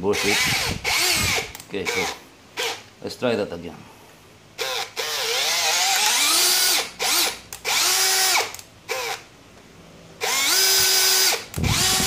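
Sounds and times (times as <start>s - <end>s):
drill motor whining: 0.1s - 2.8s, 4.6s - 9.3s, 10.2s - 12.0s.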